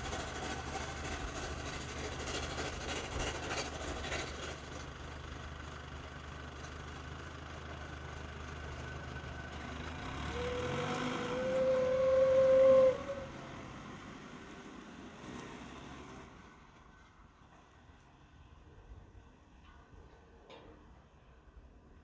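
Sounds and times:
steam locomotive rumble: 0.0 - 6.2, 9.2 - 17.8
steam whistle blast: 10.1 - 13.7.

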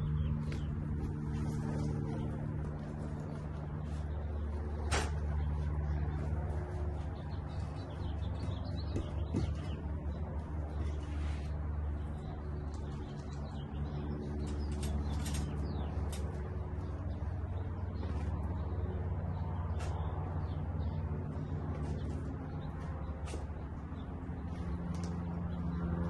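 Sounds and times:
birds chirping: 0.0 - 26.0
steady low hum: 0.0 - 26.0.

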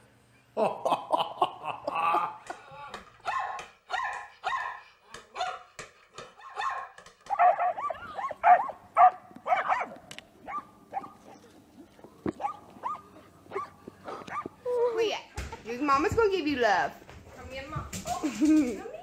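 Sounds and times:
dogs barking: 3.2 - 14.6.

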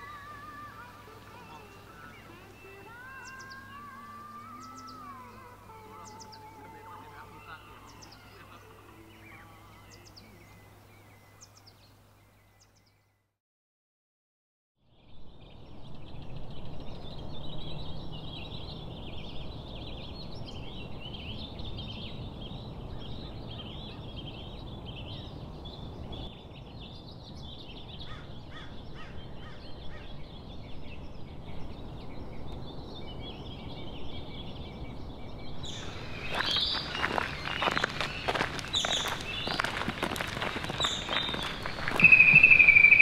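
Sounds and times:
low background noise: 0.0 - 12.8
birds calling: 0.0 - 13.1, 17.0 - 43.0
rustling: 35.7 - 43.0.

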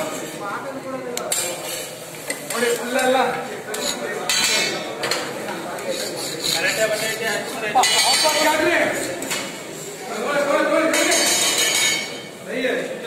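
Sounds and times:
metal spatula scraping griddle: 5.8 - 10.0.

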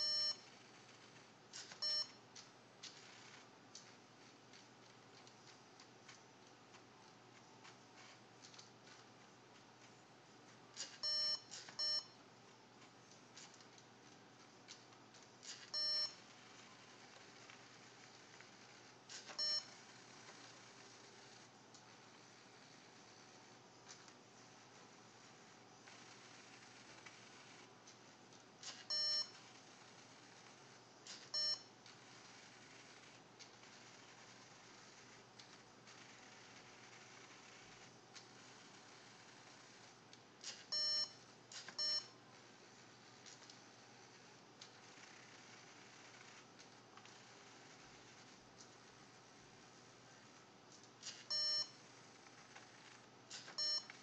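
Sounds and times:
short electronic beeps: 0.0 - 0.4, 1.8 - 2.2, 11.0 - 12.2, 15.7 - 16.2, 19.4 - 19.7, 28.9 - 29.3, 41.8 - 42.1, 51.3 - 51.8, 53.6 - 53.9.

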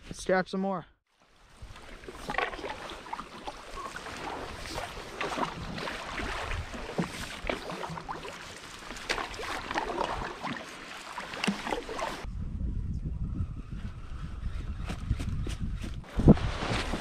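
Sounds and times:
canoe paddle splashing in water: 1.4 - 12.3
water slapping hull: 1.5 - 12.3
wind rumble on microphone: 12.2 - 17.0.

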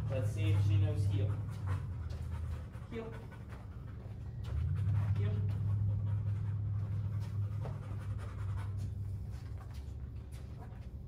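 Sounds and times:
dog panting: 0.0 - 11.0
steady low hum: 0.0 - 11.0
footsteps and taps on floor: 1.5 - 2.6, 6.8 - 11.0.

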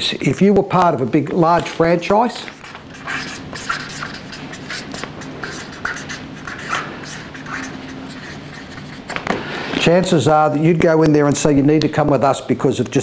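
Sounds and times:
marker pen writing on paper: 1.5 - 9.9.

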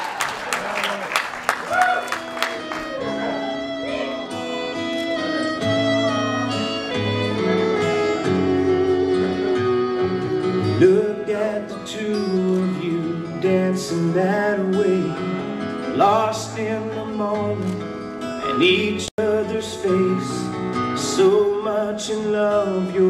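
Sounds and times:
guitar: 0.0 - 23.0
fiddle: 2.2 - 11.6
slow country ballad: 2.8 - 23.0.

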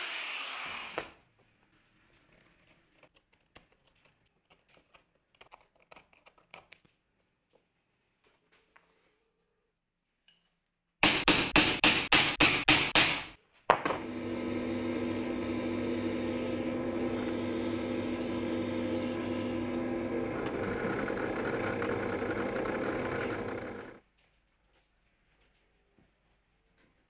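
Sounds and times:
hammer tapping centre punch: 11.0 - 14.0
drill press drilling metal: 13.9 - 24.0.

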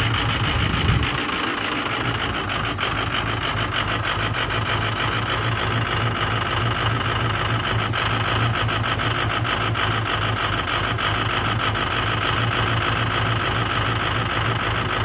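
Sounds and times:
diesel truck engine idling: 0.0 - 15.0.

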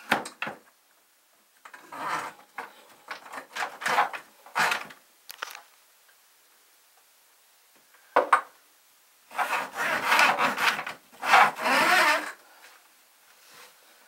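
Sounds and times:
scraping and rubbing on plumbing: 1.8 - 4.9, 9.3 - 12.4.

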